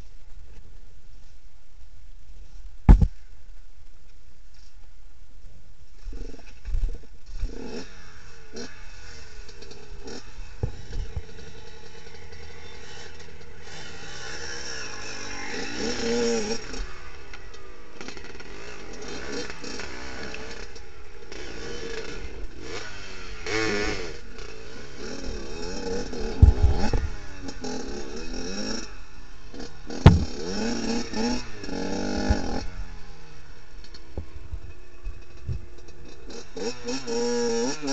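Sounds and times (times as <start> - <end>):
loud thump: 2.9 - 3.1, 30.0 - 30.4
dirt bike engine revving: 7.3 - 37.9
bike and stones clattering: 30.0 - 31.2.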